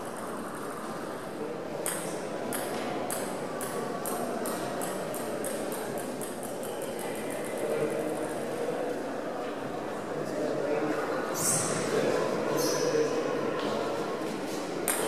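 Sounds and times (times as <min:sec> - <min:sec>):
table tennis ball bouncing: 0:01.8 - 0:07.6.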